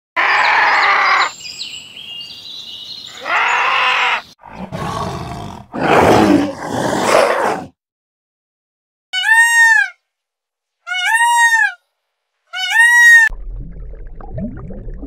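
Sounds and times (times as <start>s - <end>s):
harsh raspy animal calls: 3.1s - 7.7s.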